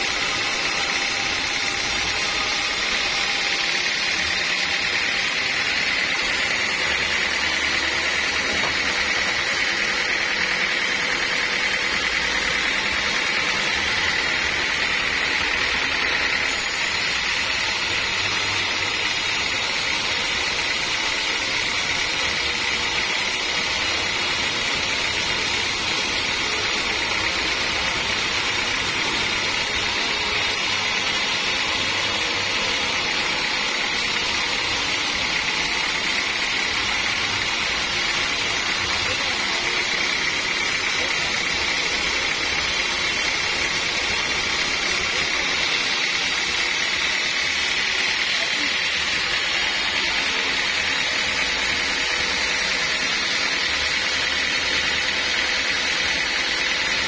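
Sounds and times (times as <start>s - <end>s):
saw blade hissing through wood: 0.0s - 57.0s
sawmill machine running: 0.0s - 57.0s.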